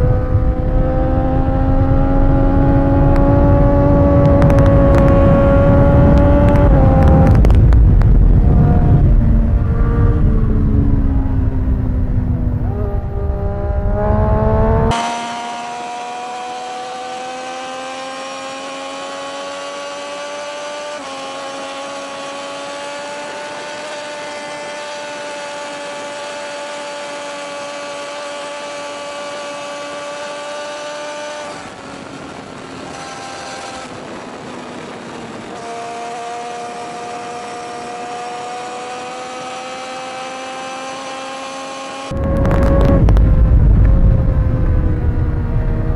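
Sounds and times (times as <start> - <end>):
motorcycle engine at high revs: 0.0 - 11.4, 12.5 - 43.3
wind rush on microphone: 0.0 - 15.0, 28.1 - 45.9.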